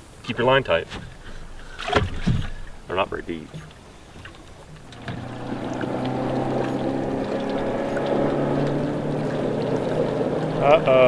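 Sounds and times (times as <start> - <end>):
electric trolling motor humming: 3.7 - 11.0.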